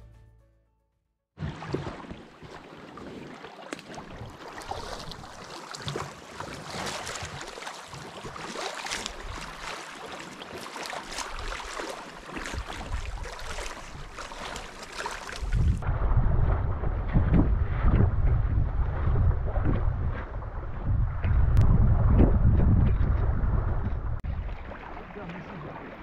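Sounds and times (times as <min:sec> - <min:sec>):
small waves lapping: 0:01.4 - 0:15.8, 0:24.2 - 0:26.0
wind rumble on microphone: 0:15.4 - 0:24.8.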